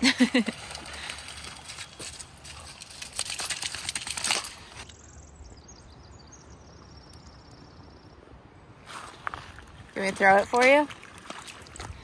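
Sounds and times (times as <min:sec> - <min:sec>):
footsteps on gravel: 0:08.9 - 0:12.0.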